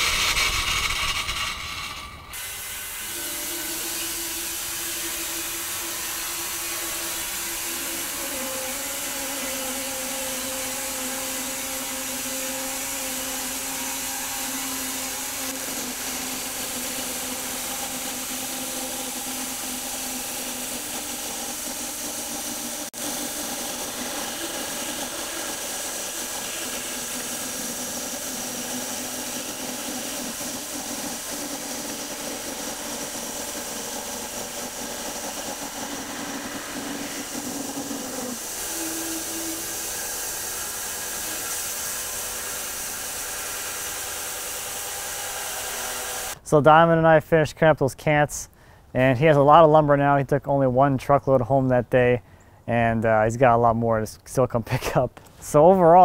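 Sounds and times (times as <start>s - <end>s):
bandsaw mill running: 0.0s - 46.4s.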